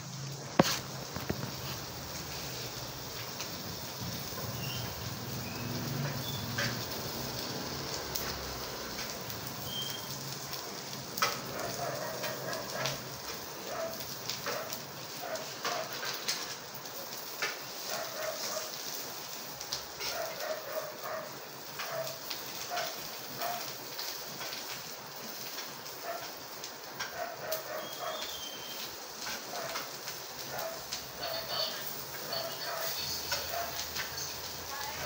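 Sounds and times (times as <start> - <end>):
food frying in a pan: 0.0 - 35.0
dog yipping and whimpering: 27.1 - 29.8
utensil clicking against pan: 33.2 - 34.3.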